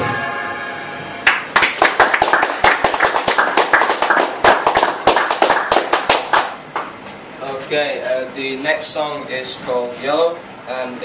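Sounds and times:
audience clapping: 1.2 - 7.0.

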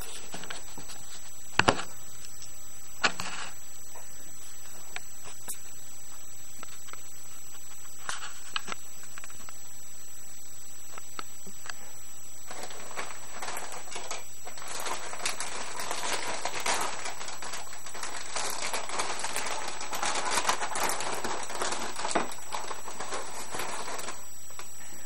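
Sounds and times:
plastic chip bag crinkling: 12.4 - 24.8.

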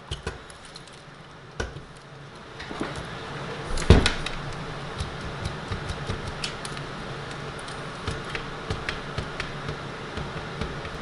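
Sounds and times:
steady low hum: 0.0 - 11.0.

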